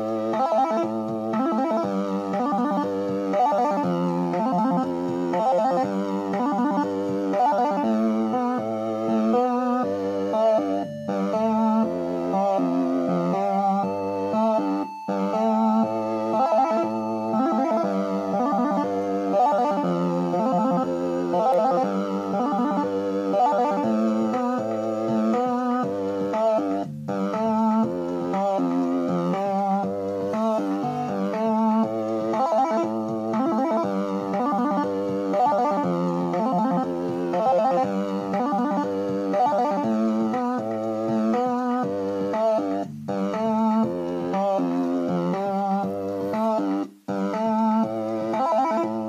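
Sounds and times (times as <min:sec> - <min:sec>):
synthesized electronic music: 0:00.0 - 0:49.0.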